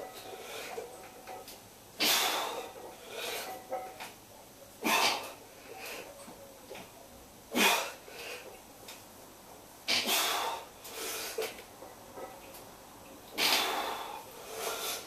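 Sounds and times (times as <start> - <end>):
person breathing heavily: 9.9 - 11.6, 13.4 - 15.0.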